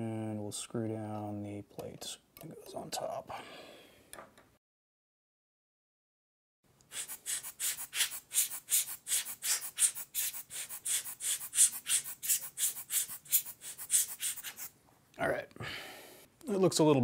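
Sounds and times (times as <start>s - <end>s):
rubber air blower puffing: 6.9s - 14.7s.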